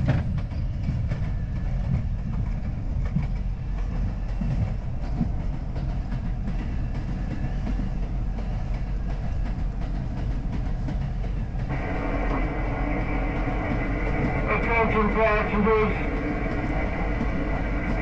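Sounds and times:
subway train wheels rumbling: 0:00.0 - 0:18.0
steady multi-tone whine: 0:11.7 - 0:18.0.

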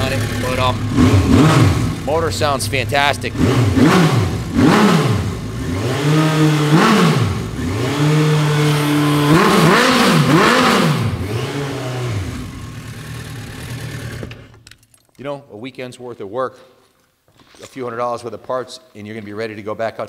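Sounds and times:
motorcycle engine revving: 0:00.0 - 0:14.6.

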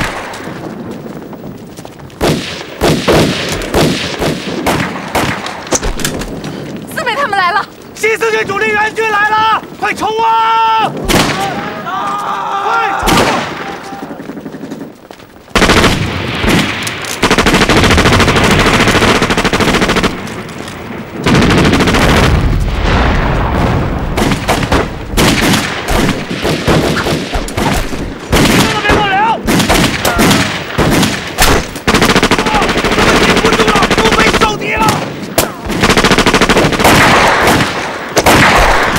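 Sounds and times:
machine-gun and rifle gunfire: 0:02.2 - 0:06.1, 0:15.5 - 0:20.5, 0:21.2 - 0:22.6, 0:24.1 - 0:38.9
men shouting: 0:08.1 - 0:14.2
explosions: 0:10.8 - 0:11.9, 0:12.9 - 0:38.9.

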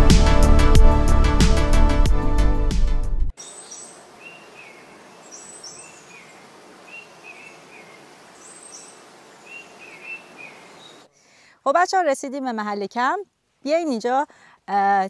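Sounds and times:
small birds chirping: 0:03.4 - 0:11.1
soft steady hiss: 0:03.4 - 0:15.0.

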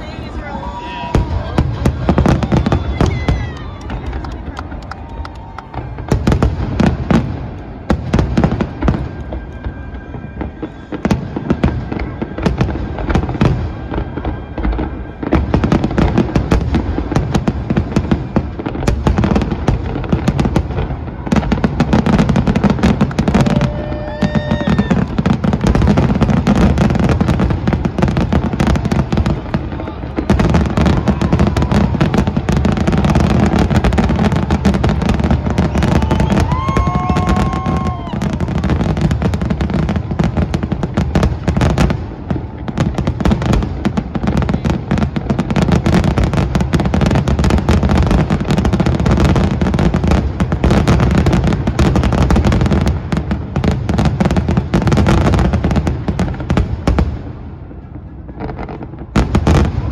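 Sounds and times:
fireworks bursting: 0:00.0 - 0:59.9
fireworks crackling: 0:00.0 - 0:59.9.

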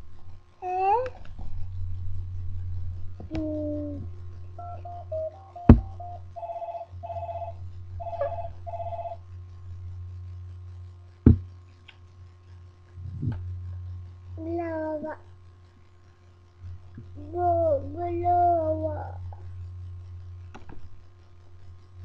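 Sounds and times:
steady low hum: 0:00.0 - 0:22.0
electronic ringing tone: 0:04.6 - 0:09.2
short beeps: 0:04.6 - 0:09.2
sharp knocks: 0:11.3 - 0:11.5.

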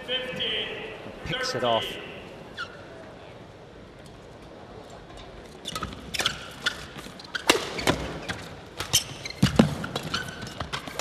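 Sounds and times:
shoes squeaking on court: 0:02.5 - 0:02.9, 0:05.5 - 0:11.0
racket hitting shuttlecock: 0:05.7 - 0:11.0.

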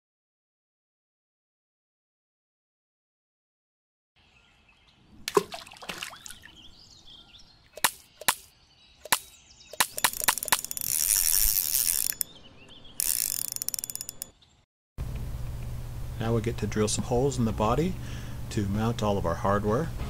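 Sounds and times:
sharp clicks and knocks: 0:07.8 - 0:14.3.

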